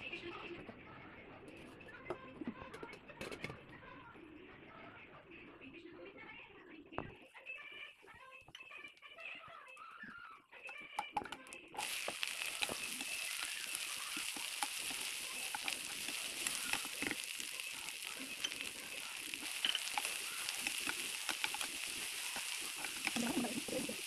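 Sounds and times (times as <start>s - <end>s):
spatula clicking and scraping: 11.0s - 24.0s
seeds and okra sizzling in oil: 11.8s - 24.0s.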